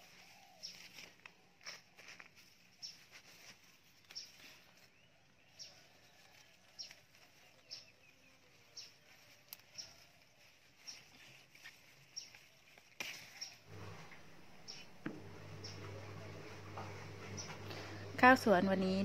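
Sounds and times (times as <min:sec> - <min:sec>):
faint outdoor ambience: 0:00.0 - 0:19.0
bird chirping: 0:10.8 - 0:16.4.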